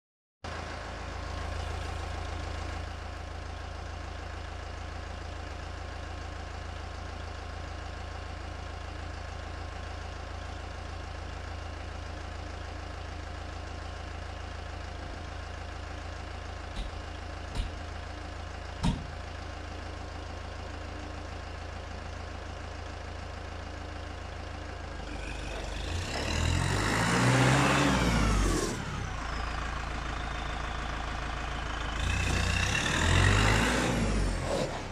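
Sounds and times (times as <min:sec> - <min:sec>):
tractor diesel engine running: 0:00.5 - 0:34.9
sharp knocks: 0:16.8 - 0:17.8, 0:18.8 - 0:19.2.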